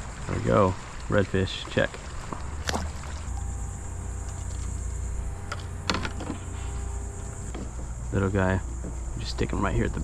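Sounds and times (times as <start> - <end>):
kayak drive whine: 0.0 - 10.0
low rumble: 2.2 - 10.0.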